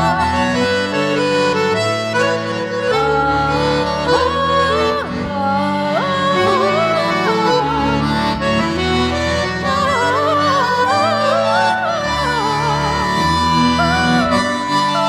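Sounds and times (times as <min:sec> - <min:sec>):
accordion playing slow melody: 0:00.0 - 0:15.0.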